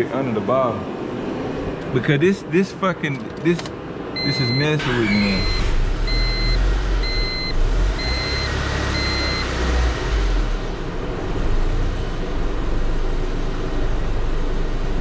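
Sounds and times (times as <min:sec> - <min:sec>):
car engine running: 0:03.1 - 0:15.0
electronic beeps: 0:04.2 - 0:09.5.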